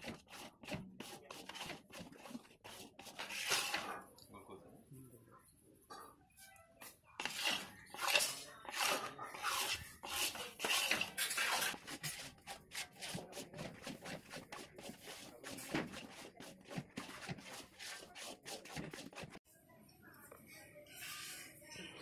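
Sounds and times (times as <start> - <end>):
ladle scraping steel pan: 0.0 - 4.0, 7.2 - 19.4.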